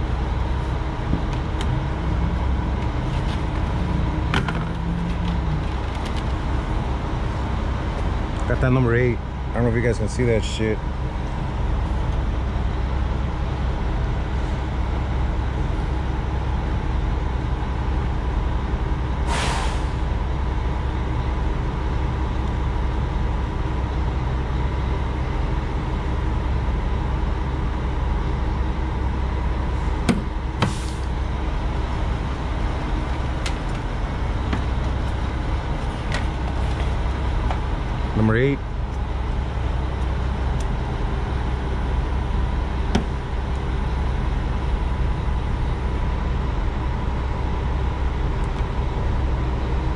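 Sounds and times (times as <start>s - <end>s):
truck engine idling: 0.0s - 49.9s
short air hiss: 19.3s - 20.0s, 30.6s - 31.1s.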